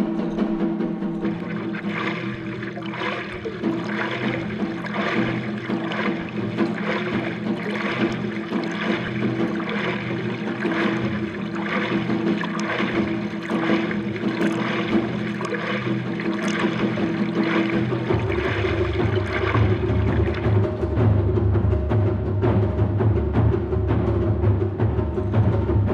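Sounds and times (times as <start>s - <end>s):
low drum music: 0.0s - 25.9s
water rushing past board: 0.8s - 22.2s
paddle strokes splashing water: 1.1s - 21.2s.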